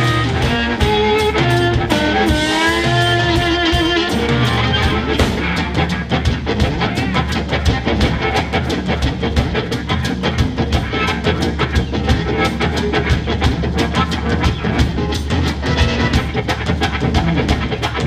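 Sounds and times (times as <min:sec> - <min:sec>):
harmonica through microphone: 0:00.0 - 0:05.9, 0:13.8 - 0:16.5
drum kit fast beat: 0:00.0 - 0:18.0
electric guitar: 0:00.0 - 0:18.0.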